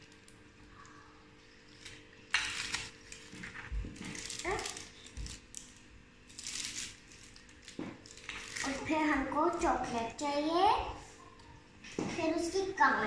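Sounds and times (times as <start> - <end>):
plastic bag crinkling: 1.6 - 9.6.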